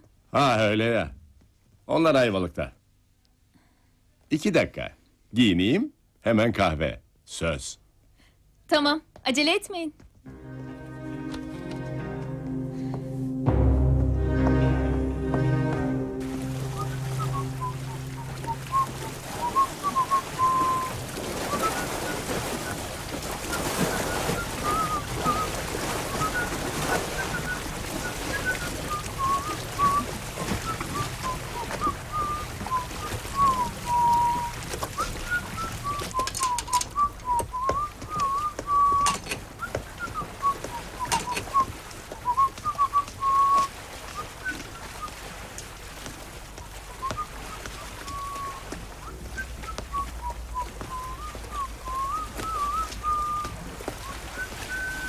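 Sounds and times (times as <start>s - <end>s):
high chirping notes: 10.3s - 21.0s
gentle waves on shore: 14.1s - 55.0s
man whistling a tune: 15.5s - 22.8s, 23.5s - 45.2s, 47.0s - 55.0s.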